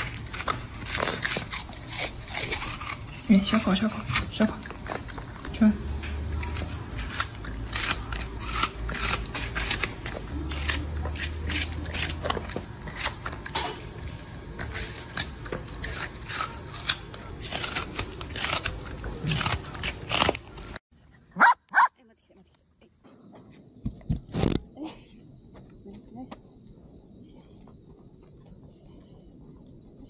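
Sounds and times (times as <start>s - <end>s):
dog crunching an apple: 0.0s - 20.8s.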